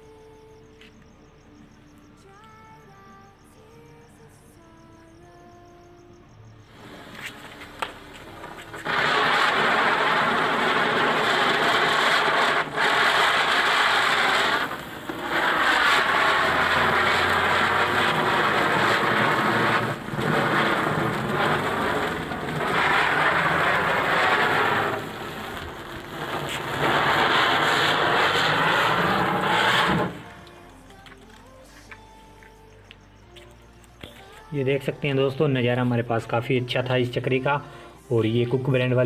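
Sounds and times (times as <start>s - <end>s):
spinner firecracker hissing: 6.7s - 31.1s.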